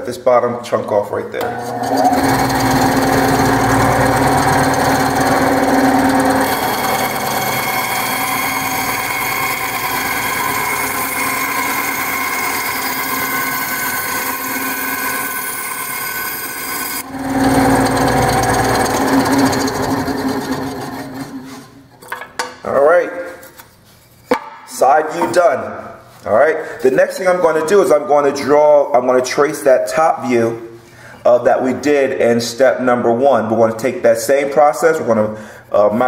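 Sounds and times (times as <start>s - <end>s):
bandsaw cutting wood: 1.4s - 21.7s.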